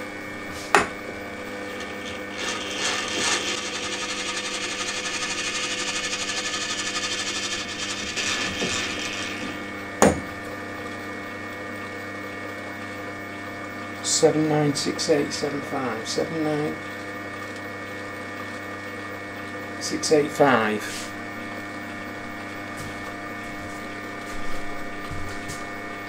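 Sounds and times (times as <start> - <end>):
milling machine running: 1.0 - 10.0.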